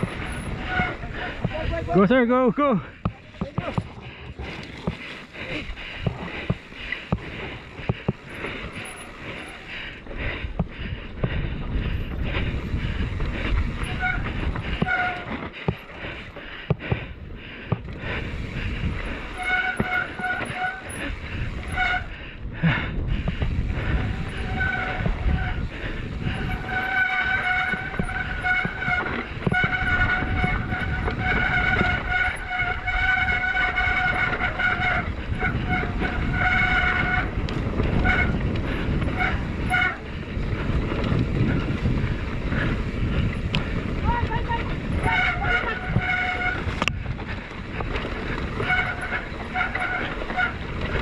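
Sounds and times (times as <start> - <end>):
high whine from bike: 0.0 - 1.9, 3.8 - 17.1, 17.8 - 51.0
wind on microphone: 0.0 - 2.1, 2.9 - 51.0
bike rattling: 0.0 - 51.0
tyre rumble: 10.5 - 51.0.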